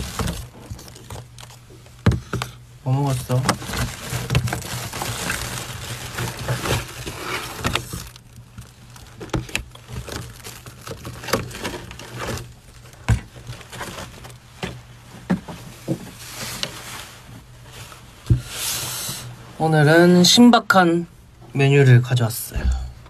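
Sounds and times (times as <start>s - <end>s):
foil bag crinkling and rustling: 0.0s - 19.2s.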